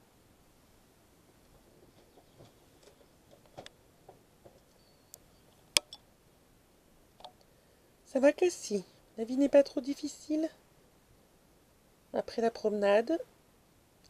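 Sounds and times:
faint clicks and ticks: 7.2s - 7.6s.

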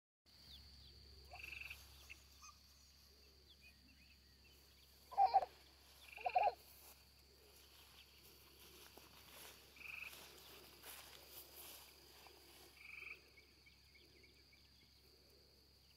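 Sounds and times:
trilling chirps: 3.7s - 6.6s.

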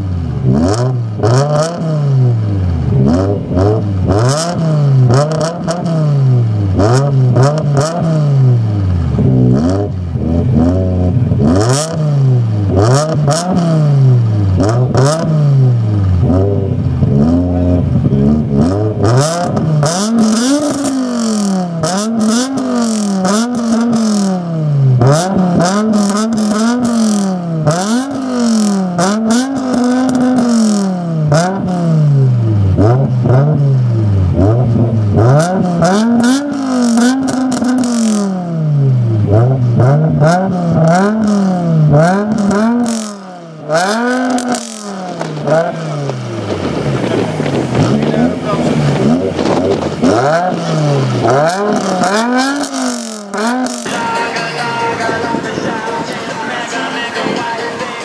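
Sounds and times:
car engine revving: 0.0s - 58.0s
exhaust crackles: 0.0s - 58.0s.

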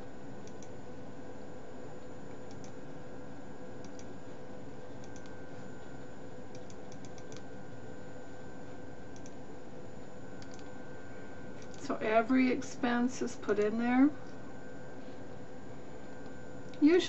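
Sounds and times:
electrical hum: 0.0s - 17.0s
computer keyboard typing: 2.5s - 2.8s, 6.6s - 7.4s, 10.4s - 10.7s, 11.6s - 11.9s.

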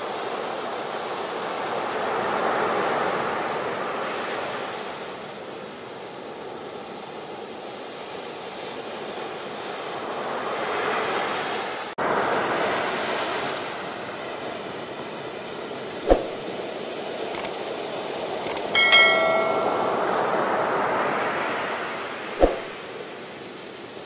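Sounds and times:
sharp knock: 16.1s - 16.4s, 22.4s - 22.8s.

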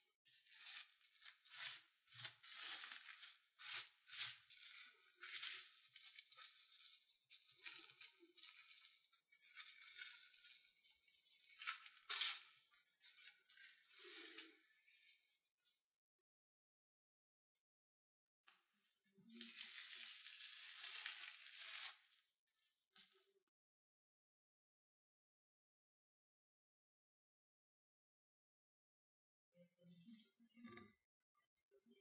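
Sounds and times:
wrapping sheet rustling: 0.3s - 15.2s, 19.4s - 22.2s.

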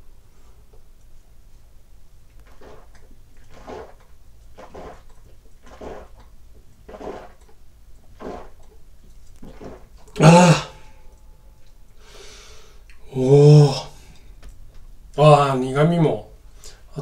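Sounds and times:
man gulping: 2.3s - 11.8s
man sighing ahh: 10.2s - 11.0s.

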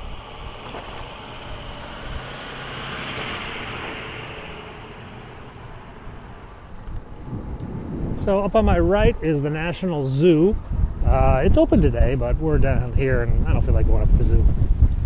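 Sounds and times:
car passing road noise: 0.0s - 11.0s.

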